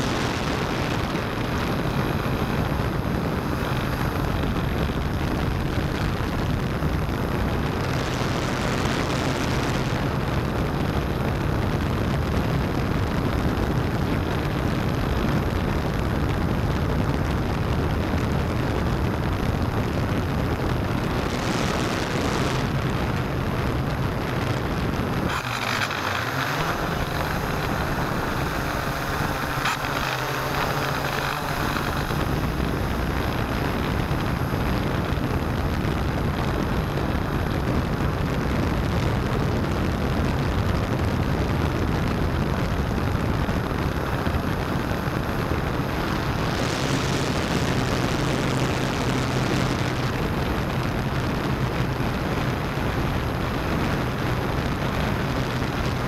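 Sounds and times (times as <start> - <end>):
drone propellers whirring: 21.0 - 36.6.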